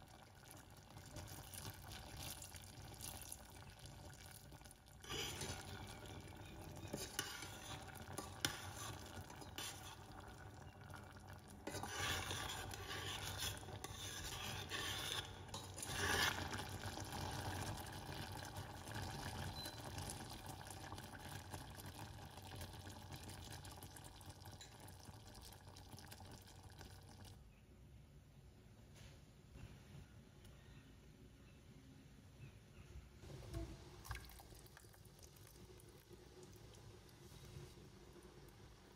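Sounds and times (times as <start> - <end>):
sauce bubbling in a pan: 0.0 - 27.6, 33.5 - 38.9
spoon scraping and tapping pan: 6.4 - 10.0, 11.6 - 16.4.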